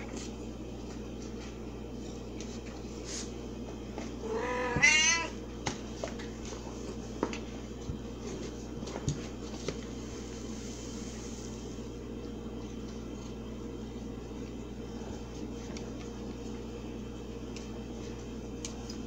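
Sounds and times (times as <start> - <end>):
steady low hum: 0.0 - 19.0
cat meowing: 4.2 - 5.4.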